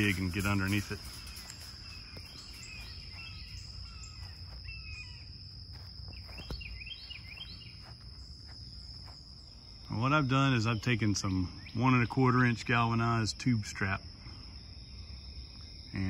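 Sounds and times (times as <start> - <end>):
bird chirping: 0.0 - 12.5
insects droning: 0.0 - 16.0.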